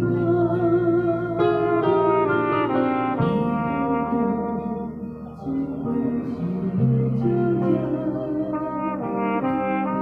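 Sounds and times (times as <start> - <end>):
bass line: 0.0 - 10.0
trumpet melody: 0.0 - 10.0.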